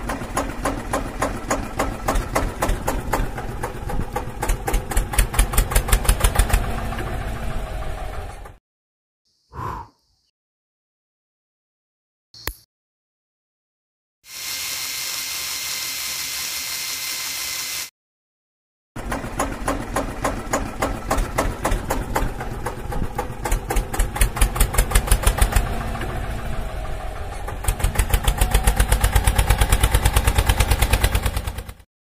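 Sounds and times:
tractor engine chugging: 0.0s - 8.6s, 19.0s - 31.8s.

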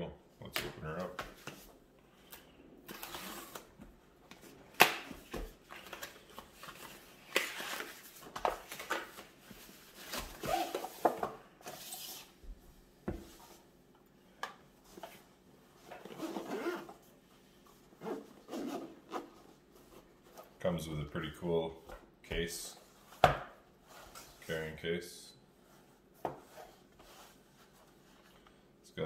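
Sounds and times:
rustling and scraping of packaging: 2.8s - 3.8s, 4.4s - 12.4s.

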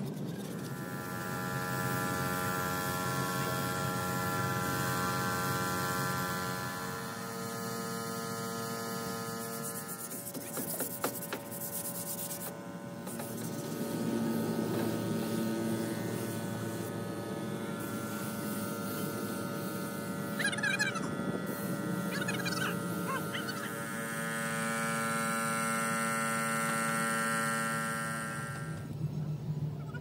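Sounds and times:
air compressor humming: 0.6s - 29.2s
paint spray gun hissing: 17.8s - 20.7s, 21.5s - 24.0s.

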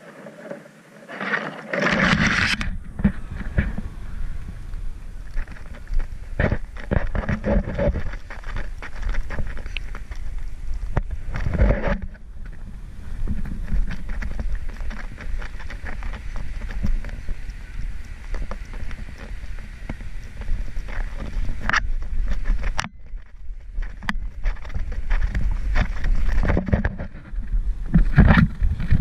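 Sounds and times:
wind buffeting microphone: 1.9s - 29.0s
footsteps in soft sand: 2.2s - 22.7s.

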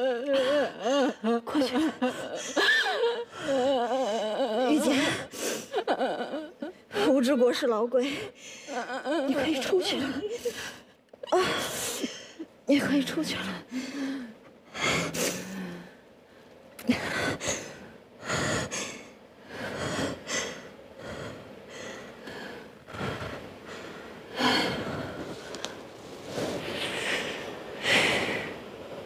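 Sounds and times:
woman weeping and sobbing: 0.0s - 7.2s, 8.0s - 12.6s.

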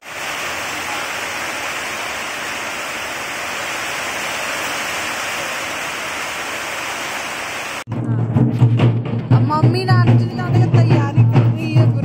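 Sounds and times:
heavy rain falling: 0.0s - 7.9s.

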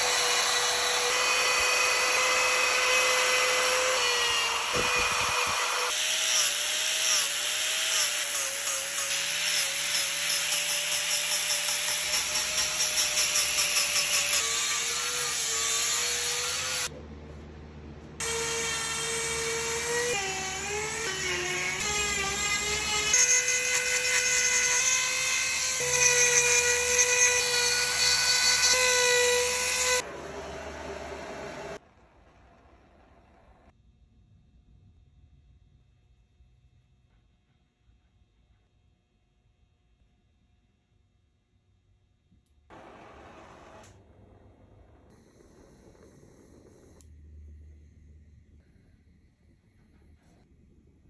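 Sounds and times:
angle grinder whining: 0.0s - 16.9s.

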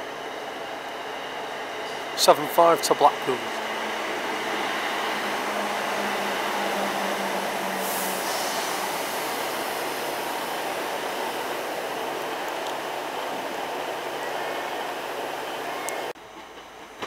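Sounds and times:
low train hum: 0.0s - 17.0s
train wheels rushing on rails: 0.0s - 17.0s
brief hiss: 7.8s - 9.3s.

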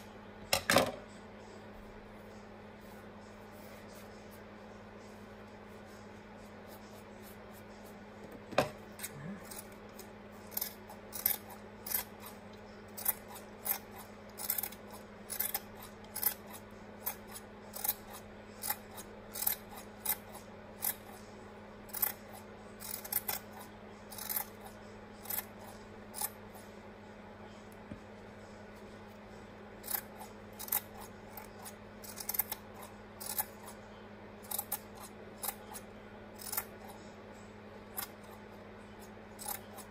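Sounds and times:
scissors snipping yarn: 8.9s - 21.2s, 21.9s - 26.4s, 29.8s - 33.8s, 34.4s - 37.0s, 37.9s - 38.4s, 39.0s - 39.9s.

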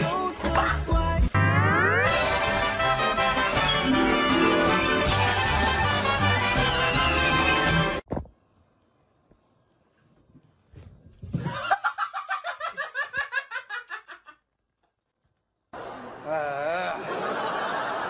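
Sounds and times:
music: 0.0s - 8.0s
person laughing hard: 11.4s - 14.4s.

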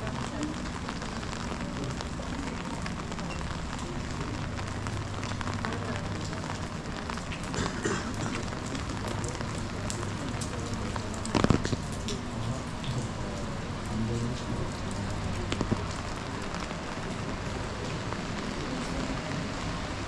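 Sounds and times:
rain on stone paving: 0.0s - 20.0s.

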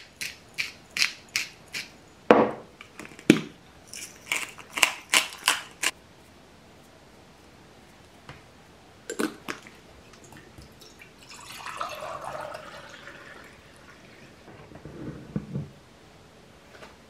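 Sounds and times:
water poured into a mug: 10.2s - 14.4s.

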